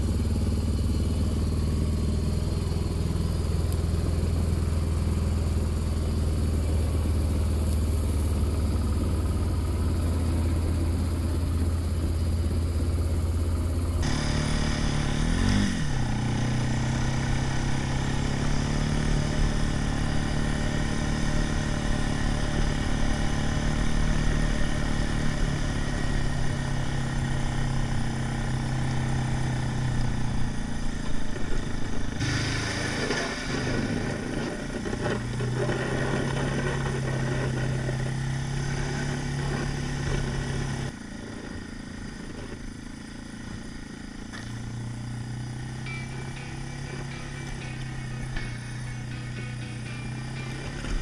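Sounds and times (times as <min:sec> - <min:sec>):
atv engine running: 0:00.0 - 0:51.0
clatter: 0:30.8 - 0:41.5.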